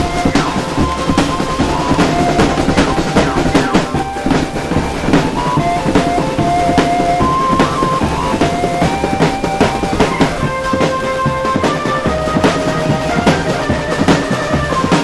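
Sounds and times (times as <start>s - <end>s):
bass drum beat: 0.0s - 14.7s
melody of held notes: 0.0s - 15.0s
snare and tenor drums: 0.0s - 15.0s.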